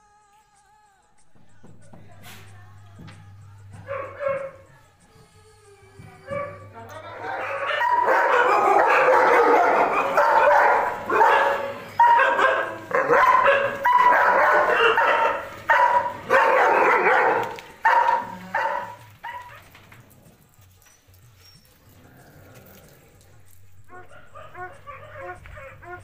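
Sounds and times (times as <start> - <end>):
dogs barking: 3.6 - 4.7, 6.1 - 20.5, 21.6 - 26.0.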